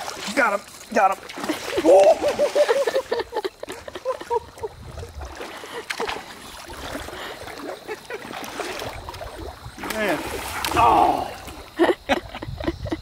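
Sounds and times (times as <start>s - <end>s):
fish splashing at water surface: 5.2s - 11.8s.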